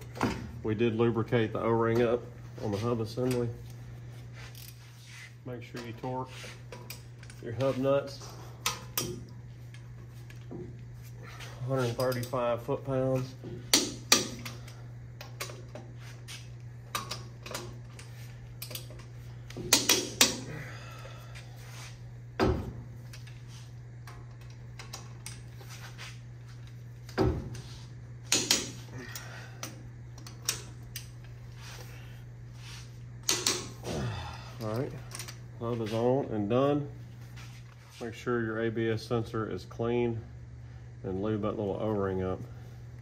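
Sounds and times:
steady low hum: 0.0s - 43.0s.

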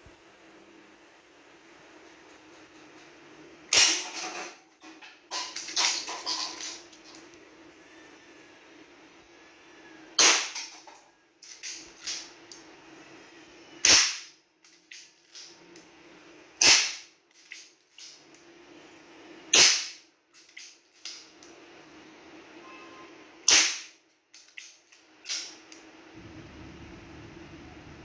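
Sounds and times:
air pistol shots: 3.7s - 4.0s, 10.2s - 10.6s, 13.8s - 14.3s, 16.6s - 17.0s, 19.5s - 20.0s, 23.5s - 24.0s.

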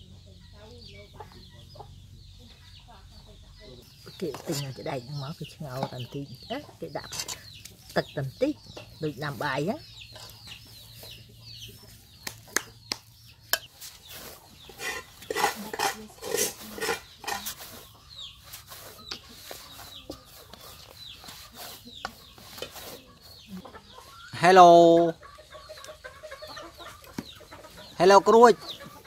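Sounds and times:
chickens clucking: 0.0s - 29.0s.

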